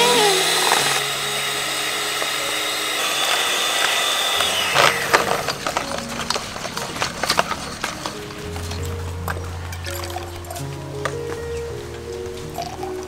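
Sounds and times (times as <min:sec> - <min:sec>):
electric hand mixer whining: 0:00.0 - 0:08.4
mixer sharp clicks: 0:00.1 - 0:07.7.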